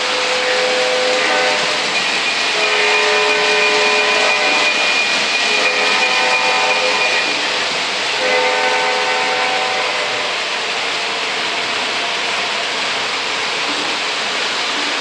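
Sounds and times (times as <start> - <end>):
model locomotive horn blasts: 0.0 - 7.6, 8.2 - 10.4
model train wheels rumbling on track: 0.0 - 15.0.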